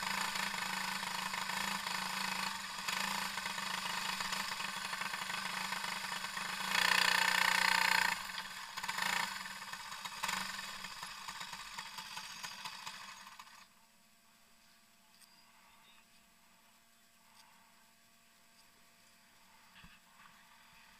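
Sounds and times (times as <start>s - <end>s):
kart engine revving: 0.0s - 13.7s.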